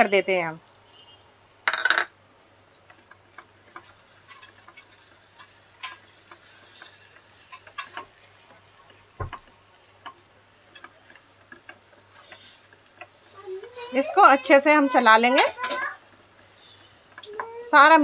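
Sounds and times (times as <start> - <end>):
wooden spatula scraping a pan: 2.9 - 18.0.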